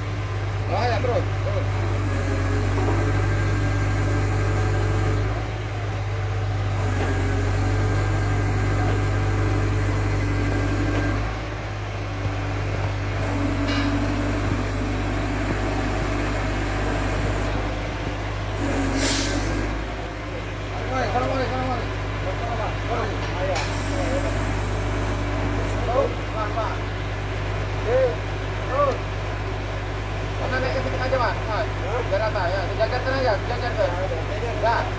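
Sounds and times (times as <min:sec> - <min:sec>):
crane engine droning: 0:00.0 - 0:34.9.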